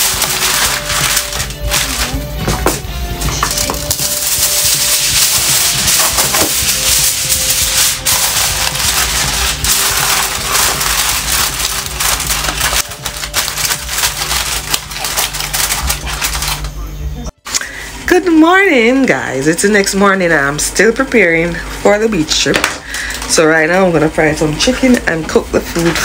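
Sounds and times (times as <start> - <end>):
aluminum foil crinkling: 0.0 - 16.9, 24.6 - 26.0.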